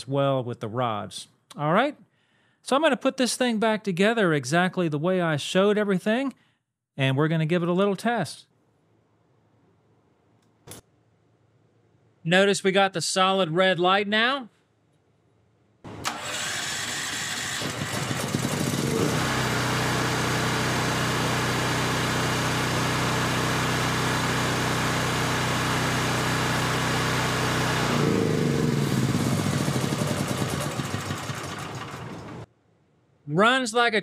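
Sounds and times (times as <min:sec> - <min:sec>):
portable generator engine running: 0:15.9 - 0:32.5.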